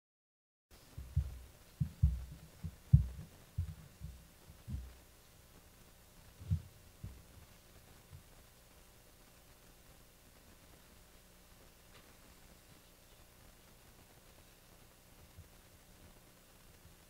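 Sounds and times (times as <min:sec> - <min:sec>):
low dull thumps: 0:00.9 - 0:05.0.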